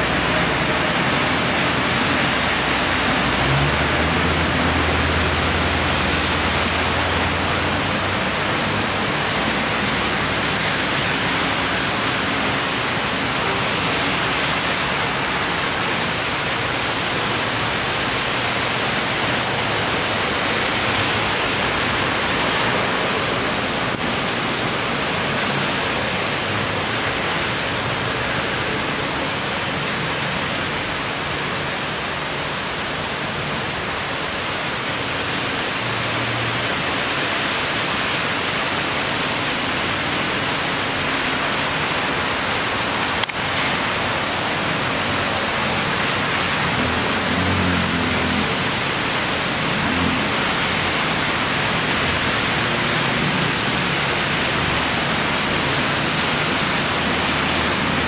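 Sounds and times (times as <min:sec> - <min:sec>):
heavy rain pouring: 0:00.0 - 0:58.0.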